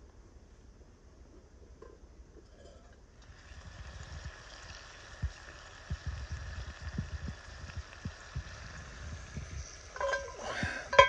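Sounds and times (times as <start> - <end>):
pot bubbling hiss: 2.6 - 11.0.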